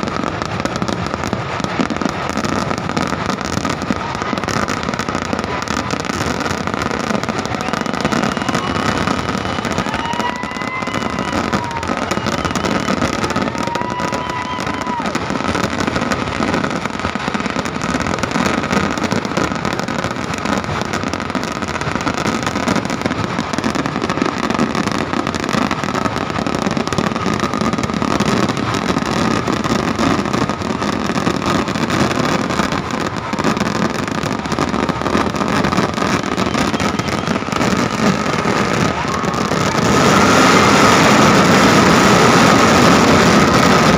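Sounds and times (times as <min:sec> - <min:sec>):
fireworks barrage: 0:00.0 - 0:43.9
high whistles: 0:36.0 - 0:38.2.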